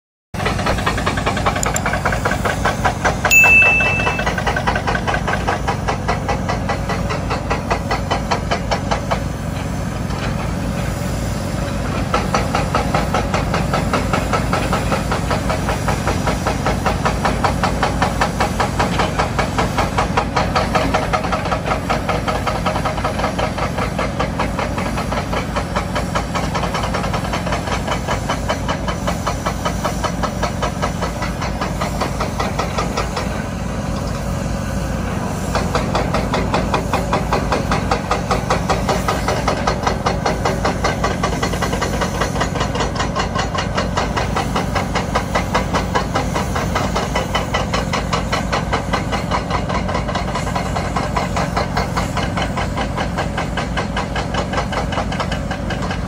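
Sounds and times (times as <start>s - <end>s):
excavator diesel engine running: 0.4s - 3.2s, 5.3s - 56.0s
short high beep: 3.3s - 4.6s.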